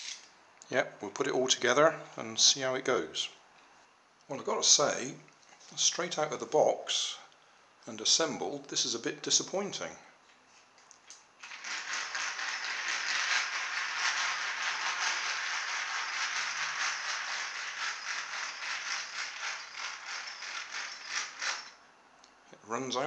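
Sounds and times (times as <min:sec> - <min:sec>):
toy train motor whirring: 0:11.4 - 0:21.8.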